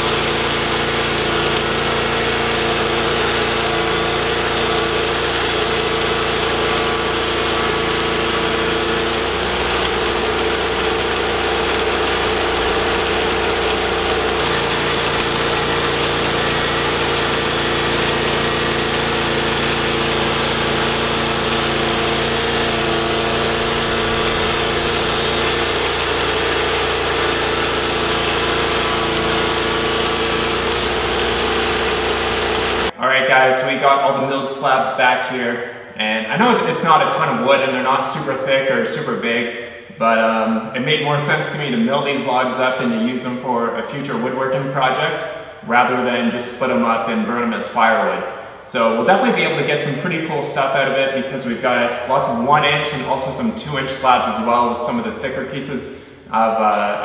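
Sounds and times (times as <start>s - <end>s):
band blade sawing log: 0.0s - 32.9s
bandsaw mill engine running: 0.0s - 33.0s, 40.6s - 57.0s.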